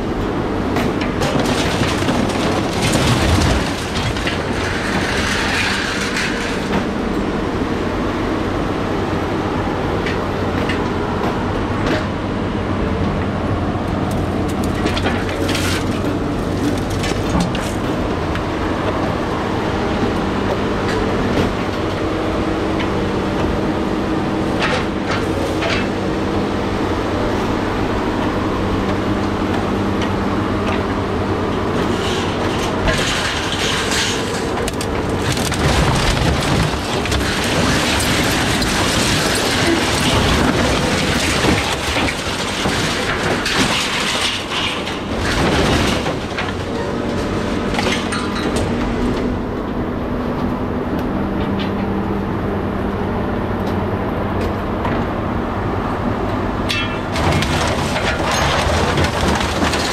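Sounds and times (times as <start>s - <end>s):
machine engine and hydraulics hum: 0.0s - 59.9s
scrap metal clanks: 2.8s - 6.9s, 14.6s - 17.8s, 31.7s - 48.7s, 56.7s - 59.9s.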